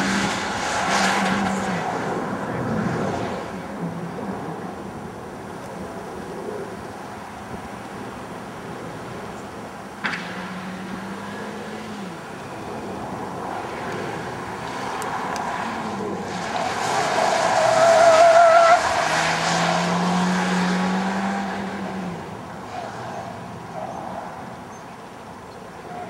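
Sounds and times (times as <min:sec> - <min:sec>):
car engine droning: 0:08.3 - 0:24.9.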